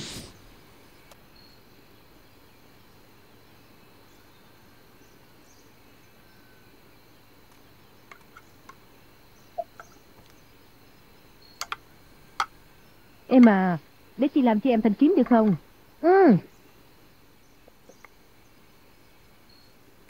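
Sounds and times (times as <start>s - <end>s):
low background hiss: 0.0s - 20.0s
clucking animal calls: 9.5s - 10.2s.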